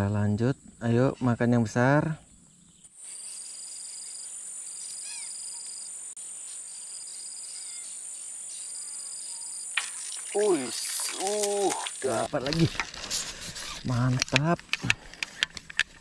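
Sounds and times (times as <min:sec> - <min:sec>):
bird chirp: 0:00.0 - 0:12.1
insect high-pitched buzz: 0:00.1 - 0:14.2
insect pulsing trill: 0:00.2 - 0:12.7.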